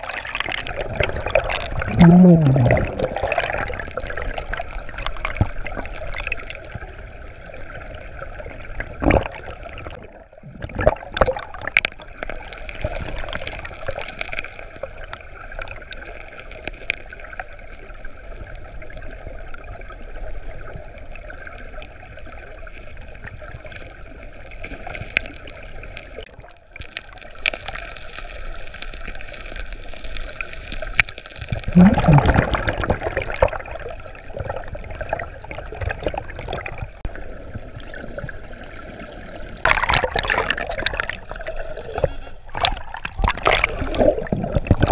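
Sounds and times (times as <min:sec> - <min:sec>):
stones clicking underwater: 0:00.0 - 0:06.8, 0:10.6 - 0:14.9, 0:24.6 - 0:33.6, 0:39.6 - 0:44.9
underwater river rushing: 0:00.0 - 0:44.9.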